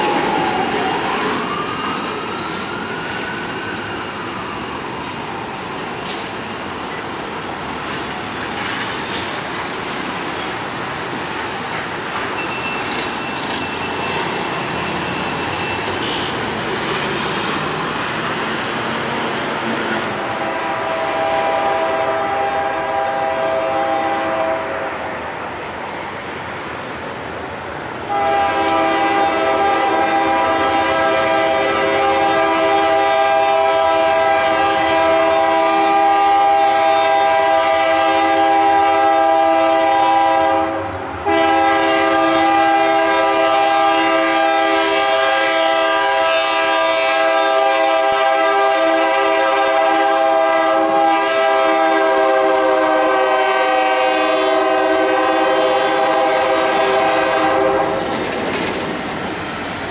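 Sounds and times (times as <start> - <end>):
train rumble: 0.0 - 59.9
locomotive air horn blasts: 16.0 - 16.4, 19.9 - 25.0, 28.1 - 58.1.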